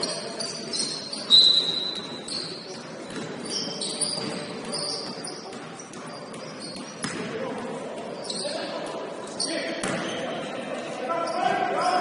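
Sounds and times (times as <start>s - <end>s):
hubbub of large hall: 0.0s - 12.0s
sneakers squeaking on gym floor: 0.0s - 12.0s
basketball bouncing: 2.0s - 7.3s.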